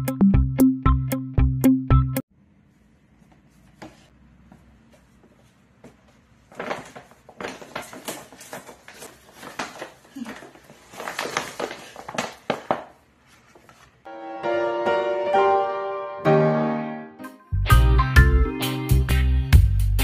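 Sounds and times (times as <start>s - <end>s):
paper gift bag rustling: 6.3s - 14.1s.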